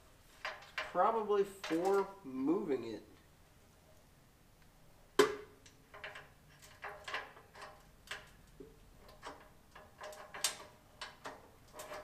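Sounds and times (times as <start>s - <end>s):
metal parts clicking and clinking: 1.6s - 2.1s, 5.6s - 12.0s.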